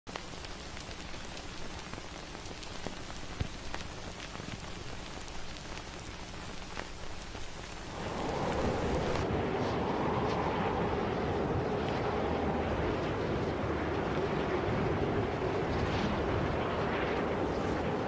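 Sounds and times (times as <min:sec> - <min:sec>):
small crackling clicks: 0:00.1 - 0:09.2
steady hiss: 0:00.1 - 0:10.9
rushing sound: 0:07.8 - 0:18.0.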